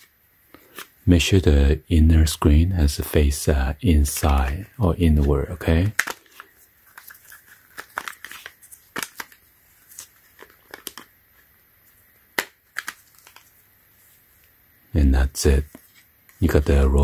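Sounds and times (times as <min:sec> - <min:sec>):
plastic phone case clicking in holster: 0:12.4 - 0:13.4.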